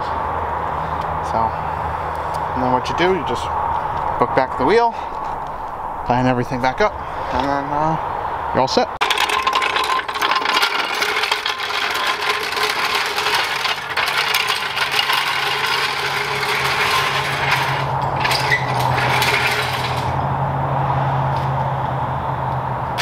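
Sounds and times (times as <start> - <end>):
metal tools clinking: 9.0 - 20.2.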